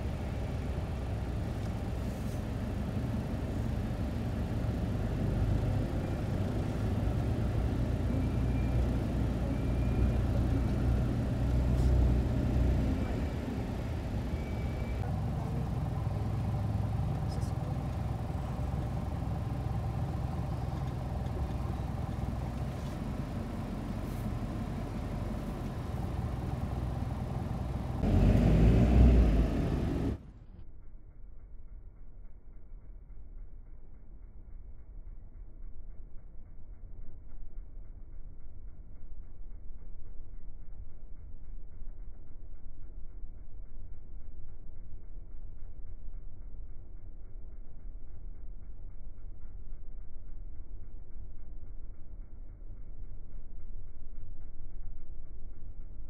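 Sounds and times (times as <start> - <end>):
car engine and tyre rumble: 0.0 - 32.1.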